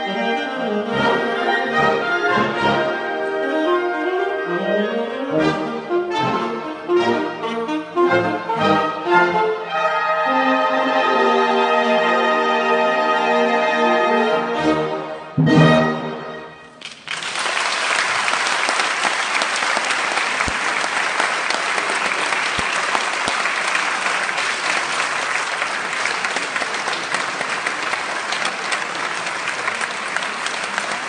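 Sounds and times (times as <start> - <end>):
audience applause: 16.8 - 31.0.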